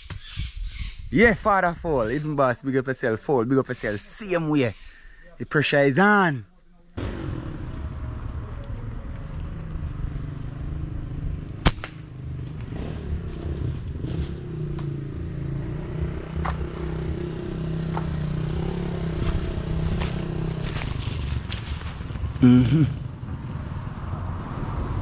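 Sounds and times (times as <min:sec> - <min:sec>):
motorcycle engine running: 0:07.0 - 0:24.9
sharp snap: 0:11.5 - 0:12.7.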